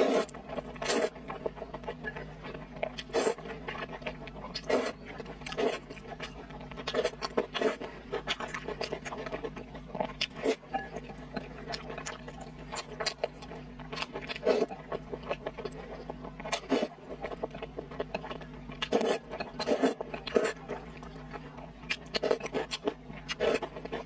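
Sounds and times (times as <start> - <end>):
noodles slurped: 0.0 - 1.3, 18.8 - 20.6
wet chewing and smacking: 0.0 - 24.0.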